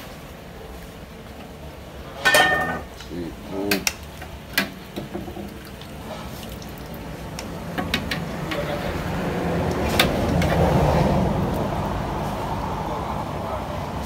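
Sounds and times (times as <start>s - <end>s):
ladle clinking on metal pot: 2.2s - 2.9s
liquid sloshing: 5.0s - 7.8s.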